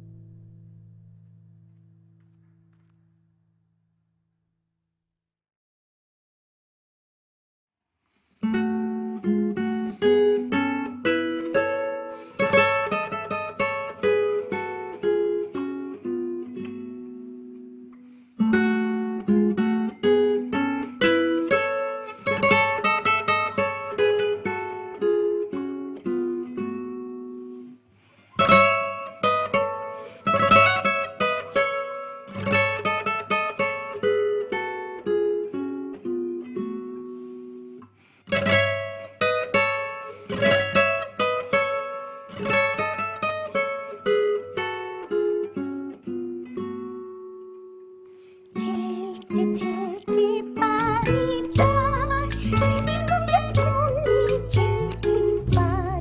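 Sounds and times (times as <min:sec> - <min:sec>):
plucked string melody: 0:48.6 - 0:56.0.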